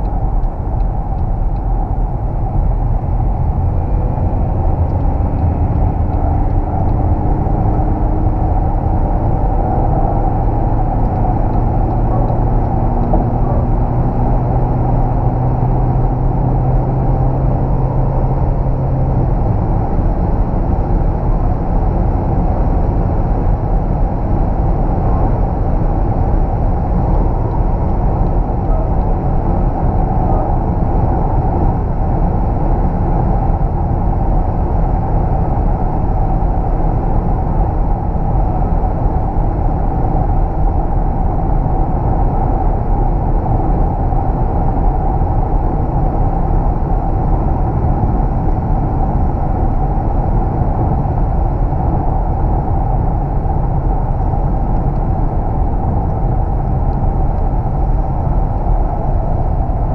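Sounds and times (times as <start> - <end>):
car interior road rumble: 0.0 - 59.9.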